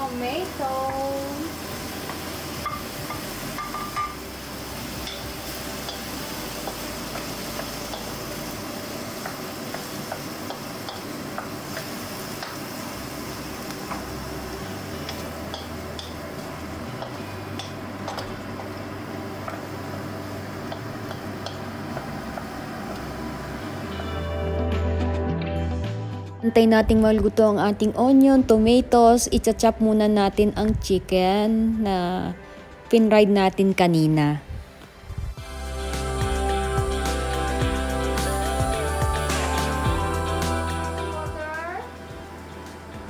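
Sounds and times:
vegetables sizzling in a wok: 0.0 - 24.6, 35.4 - 43.0.

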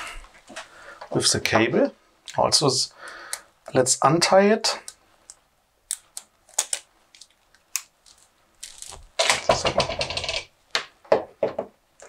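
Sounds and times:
cable rustling and scraping: 8.0 - 10.4.

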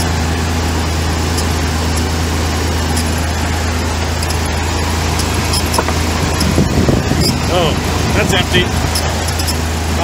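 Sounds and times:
engine idling: 0.0 - 10.0
belt squeaking: 1.2 - 3.4, 4.0 - 7.7, 8.7 - 9.7.

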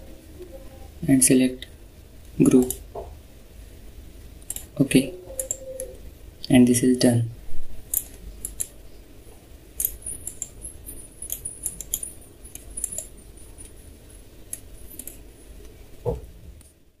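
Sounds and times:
low steady hum: 0.0 - 17.0
computer mouse clicks: 4.4 - 4.7, 5.4 - 6.0, 7.9 - 8.8, 9.8 - 10.6, 11.3 - 13.8, 14.5 - 15.2.

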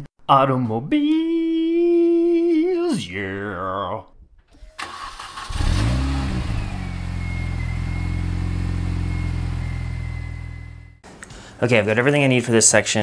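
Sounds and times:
car engine revving: 4.8 - 11.0.

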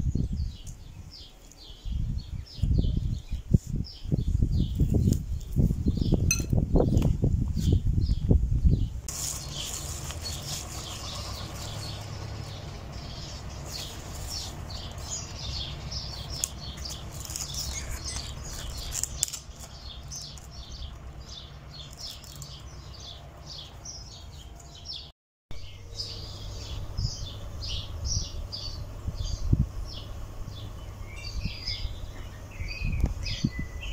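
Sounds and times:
small birds chirping: 0.0 - 33.9
low background rumble: 4.1 - 24.9.

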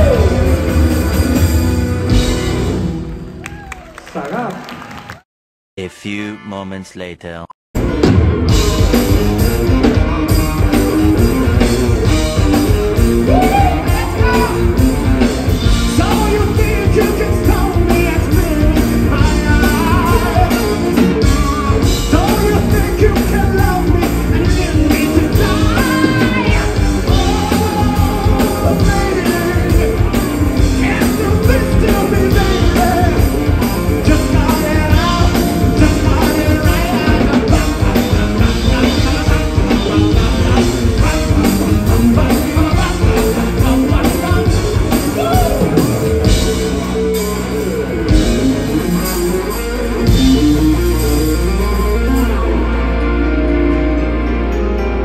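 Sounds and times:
live band playing: 0.0 - 3.9, 5.8 - 55.0
man singing into microphone: 15.9 - 33.3, 34.0 - 39.7.

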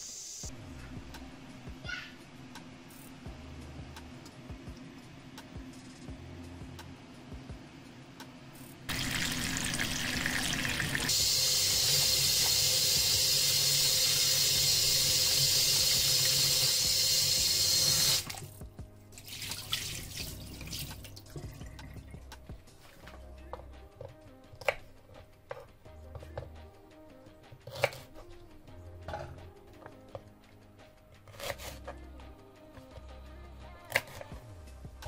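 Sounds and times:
water splashing into sink: 8.9 - 11.1, 19.2 - 21.2
tap water running into sink: 8.9 - 18.5, 19.2 - 21.3.

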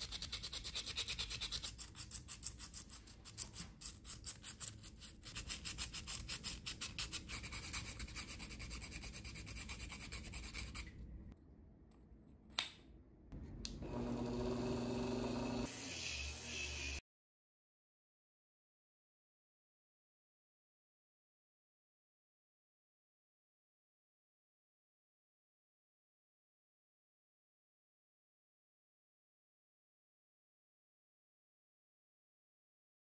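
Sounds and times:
sandpaper rasping by hand: 0.0 - 10.9
rotary sanding tool humming: 13.8 - 17.0.

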